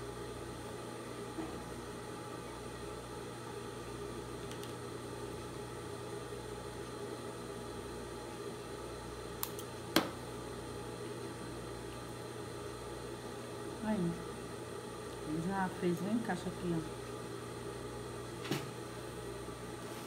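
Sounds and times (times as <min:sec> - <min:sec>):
steady background hum: 0:00.0 - 0:20.0
small sharp clicks: 0:09.4 - 0:09.7.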